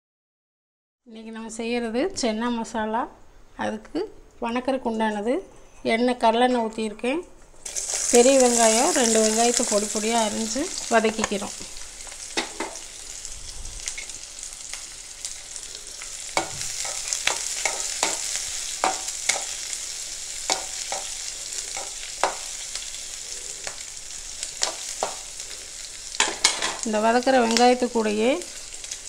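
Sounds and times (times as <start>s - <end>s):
onions sizzling in oil: 7.6s - 29.0s
spatula scraping and tapping pan: 10.8s - 12.8s, 16.3s - 19.7s, 20.4s - 22.7s, 24.6s - 25.3s, 26.1s - 26.9s.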